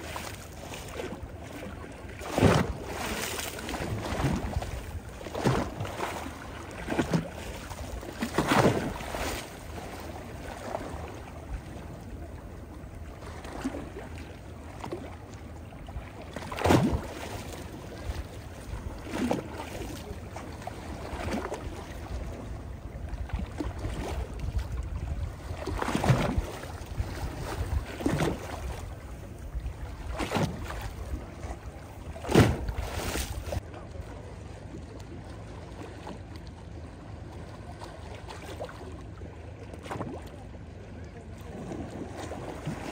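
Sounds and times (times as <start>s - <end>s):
wind rumble on microphone: 1.1s - 14.1s, 16.8s - 33.8s.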